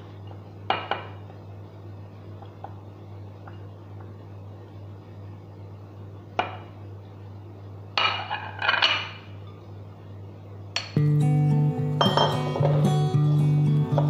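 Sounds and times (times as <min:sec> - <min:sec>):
steady low hum: 0:00.0 - 0:14.0
ceramic and glass clatter: 0:08.0 - 0:09.2, 0:12.0 - 0:12.8.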